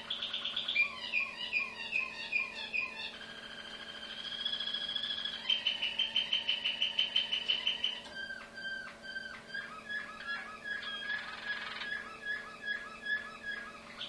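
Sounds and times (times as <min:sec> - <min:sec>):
canary singing: 0:00.0 - 0:14.0.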